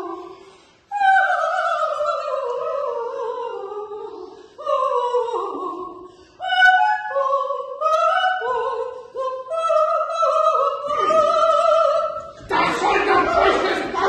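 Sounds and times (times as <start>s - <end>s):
soprano singing operatic: 0.0s - 14.0s
singer breathing: 0.3s - 0.9s, 4.2s - 4.6s, 6.0s - 6.4s.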